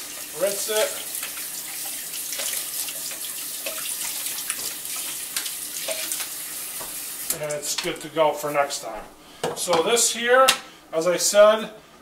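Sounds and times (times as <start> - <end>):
faucet water running into sink: 0.0 - 7.5.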